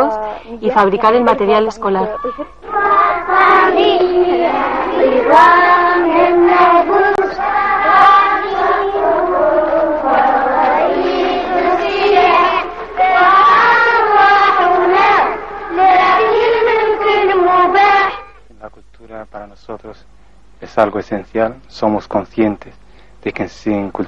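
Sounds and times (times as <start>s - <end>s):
children singing in unison: 2.2s - 18.4s.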